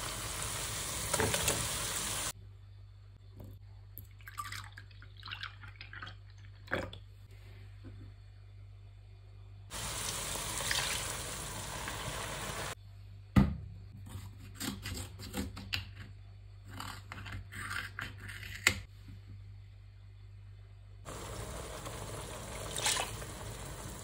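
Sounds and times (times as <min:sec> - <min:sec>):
steady hiss: 0:00.0 - 0:02.4, 0:09.7 - 0:12.8, 0:21.1 - 0:24.0.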